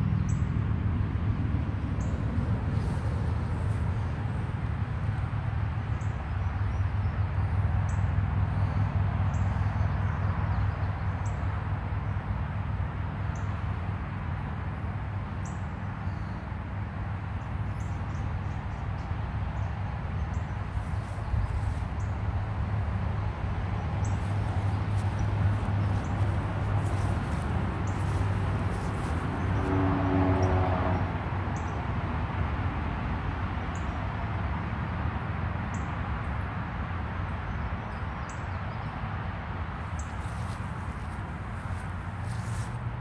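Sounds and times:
steady low rumble: 0:20.4 - 0:29.8.

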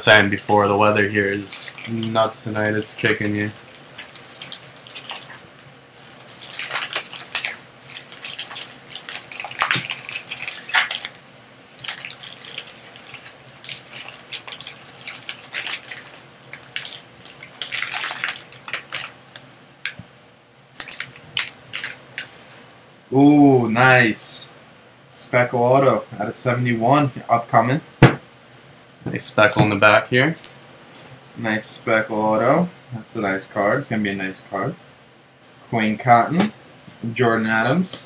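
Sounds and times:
wrapper crinkling and tearing: 0:00.1 - 0:19.4, 0:20.8 - 0:22.6.

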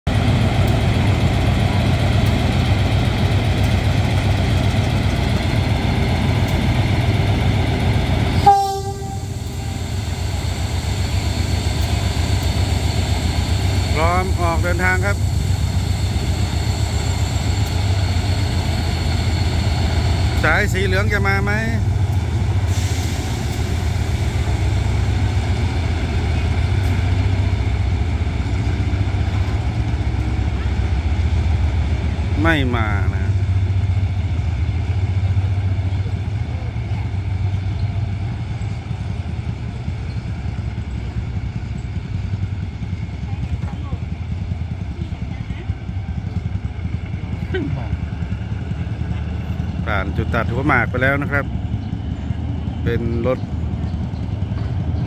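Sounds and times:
locomotive engine throbbing: 0:00.1 - 0:55.0
locomotive horn toot: 0:08.4 - 0:09.8.

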